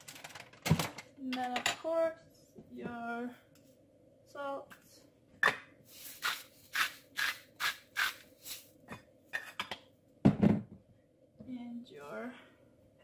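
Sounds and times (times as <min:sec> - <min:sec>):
salt grinder rasping: 0:06.0 - 0:08.7.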